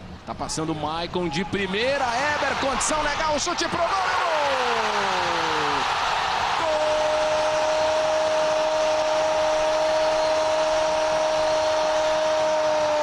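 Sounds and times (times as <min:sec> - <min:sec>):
stadium crowd noise: 0:00.3 - 0:13.0
commentator shouting goal: 0:00.6 - 0:05.8.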